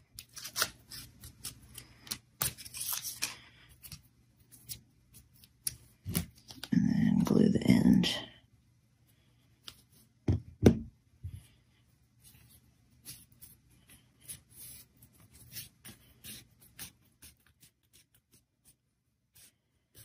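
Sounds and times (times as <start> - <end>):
crepe paper rustling: 0.0 - 4.0.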